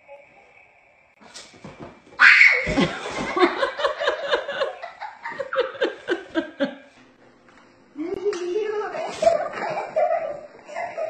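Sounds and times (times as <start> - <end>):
child falling onto mat thud: 1.4 - 3.4.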